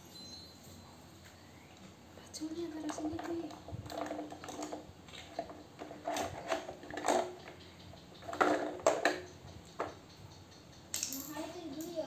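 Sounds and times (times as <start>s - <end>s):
plastic toy pieces clattering: 2.8s - 7.6s, 8.2s - 9.3s, 10.9s - 11.9s.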